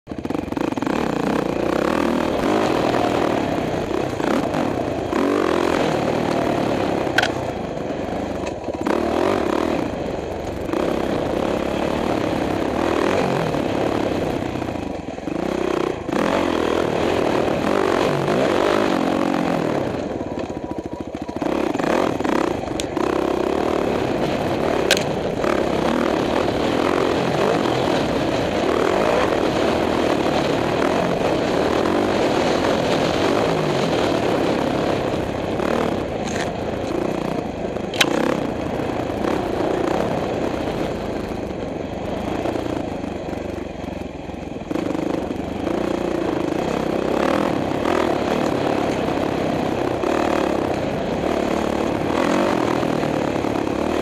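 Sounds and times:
dirt bike engine revving: 0.1s - 43.9s, 44.6s - 54.0s
bike clatter: 24.9s - 25.2s.

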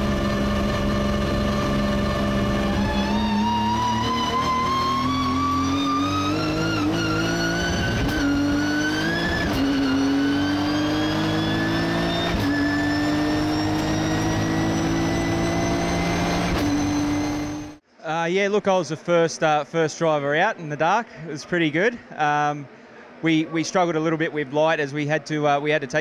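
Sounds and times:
race car engine accelerating: 0.0s - 17.8s.

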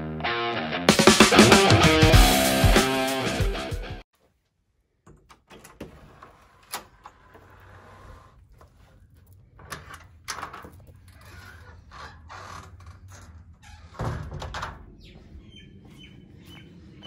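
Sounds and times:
screen door clicks and knocks: 5.1s - 7.6s, 9.6s - 15.0s.

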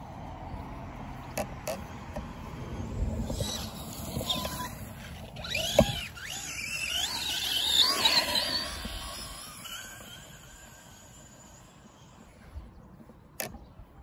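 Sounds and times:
electric motor whining: 2.9s - 12.3s.

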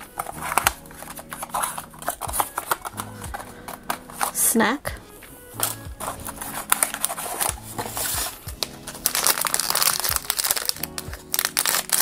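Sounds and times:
foil bag crinkling: 0.0s - 4.5s, 5.1s - 12.0s
soft background music: 0.0s - 12.0s.

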